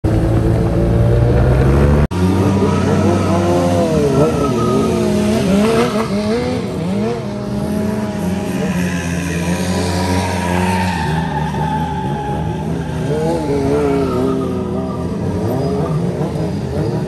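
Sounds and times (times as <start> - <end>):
scooter engine drone: 0.0 - 17.0
motorcycle engines revving: 0.1 - 17.0
tyre squeal: 2.3 - 6.8, 8.3 - 17.0.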